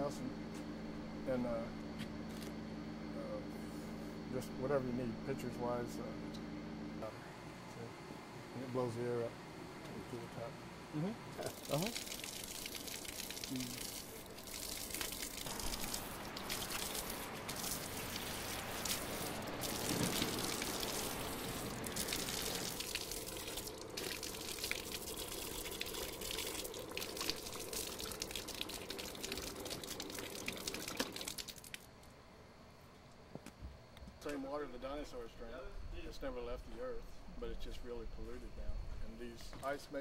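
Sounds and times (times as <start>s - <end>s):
water running from faucet: 11.4s - 31.8s.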